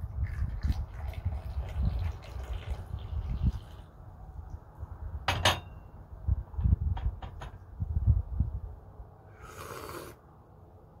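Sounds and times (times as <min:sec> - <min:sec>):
airy slurp of tea: 0:09.3 - 0:10.2.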